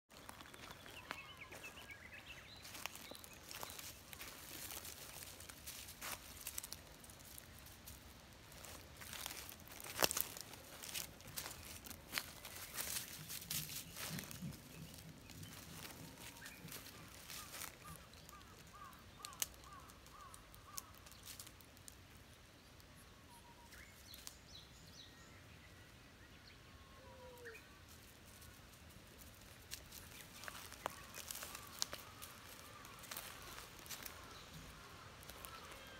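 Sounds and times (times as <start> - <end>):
footsteps in dry leaves: 0.1 - 21.8, 27.8 - 35.9
bird calling: 8.5 - 21.4, 30.1 - 35.9.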